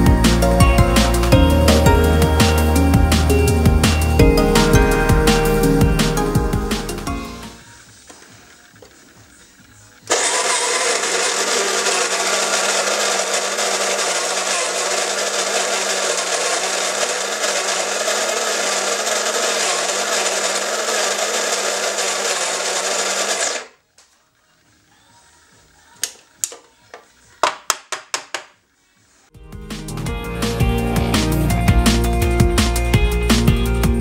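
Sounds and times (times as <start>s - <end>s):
coffee grinder grinding beans: 10.1s - 23.8s.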